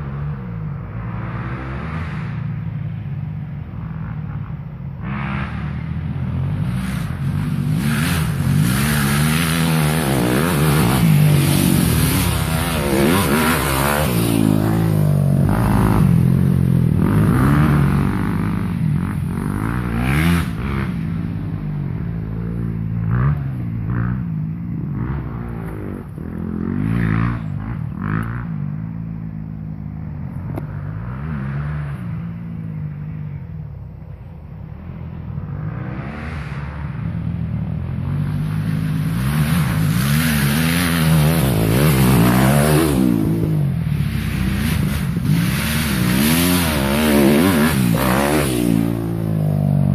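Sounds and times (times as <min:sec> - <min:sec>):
dirt bike engines revving: 0:00.0 - 0:49.9.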